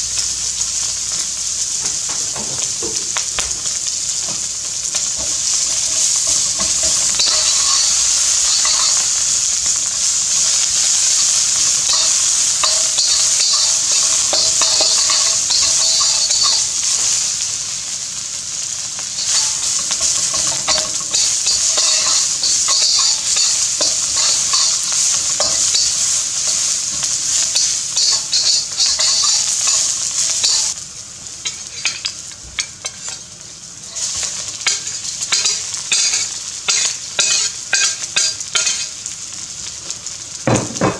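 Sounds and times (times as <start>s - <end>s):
food sizzling in a wok: 0.0s - 40.9s
metal spatula scraping a pan: 4.1s - 17.2s, 19.2s - 30.8s, 31.5s - 33.2s, 33.9s - 38.9s.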